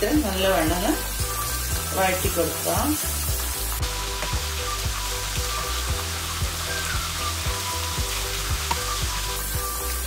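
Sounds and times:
onions sizzling in hot oil: 0.0s - 10.0s.

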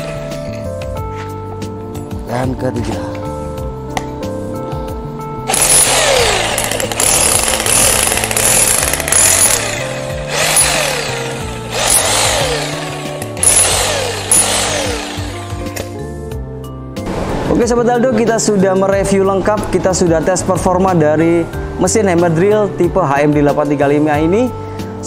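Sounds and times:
demolition hammer on concrete: 5.5s - 16.0s.

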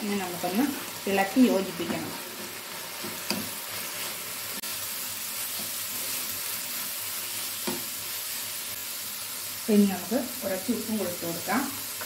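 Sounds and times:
food sizzling in a pan: 0.0s - 12.0s
spatula scraping a pan: 1.8s - 4.7s, 5.3s - 8.8s.

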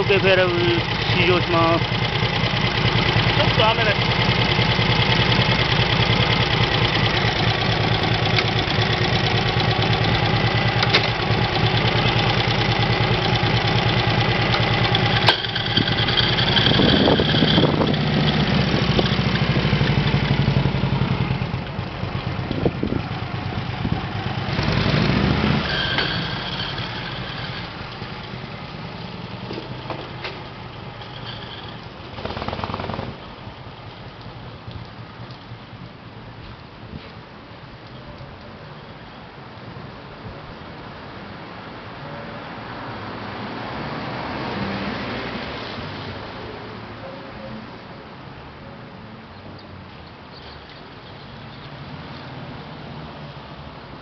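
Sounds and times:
motorcycle engine idling: 0.0s - 36.3s
motorcycle revving away: 0.8s - 28.3s.

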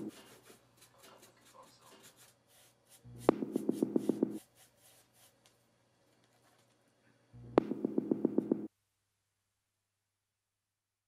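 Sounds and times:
paintbrush strokes on wood: 0.0s - 5.5s
pulsing hum: 3.1s - 4.4s, 7.4s - 8.7s.

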